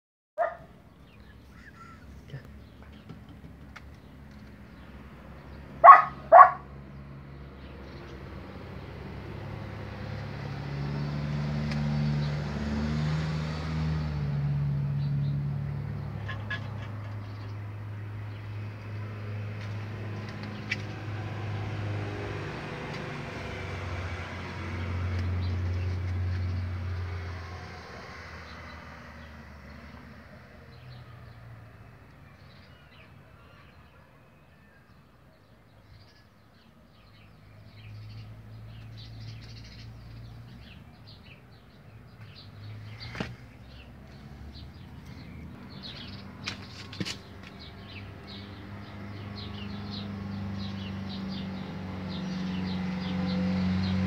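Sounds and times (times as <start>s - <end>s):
dog barking: 0.4s - 0.7s, 5.8s - 6.7s.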